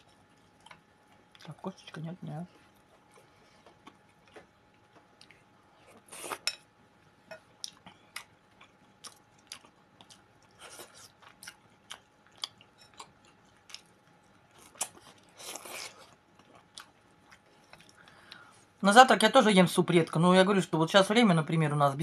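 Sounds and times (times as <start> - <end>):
person chewing with wet mouth smacks: 3.6 - 6.4, 7.6 - 18.4.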